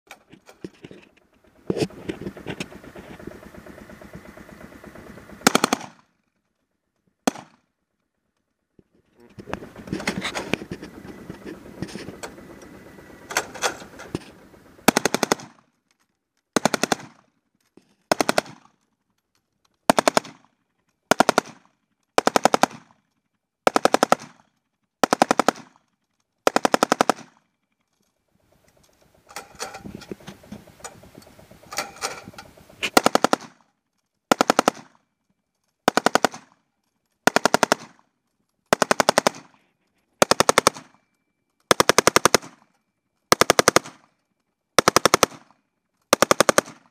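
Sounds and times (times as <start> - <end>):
machine gun firing bursts: 0.2 - 6.4, 7.2 - 7.8, 9.3 - 15.9, 16.5 - 19.0, 19.8 - 27.6, 28.3 - 35.1, 35.8 - 41.1, 41.7 - 46.9.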